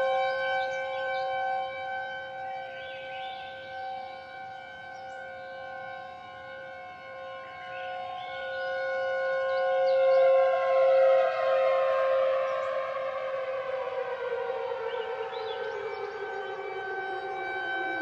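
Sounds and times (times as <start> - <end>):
warning siren steady tone: 0.0 - 18.0
siren tone sliding down in pitch: 9.7 - 18.0.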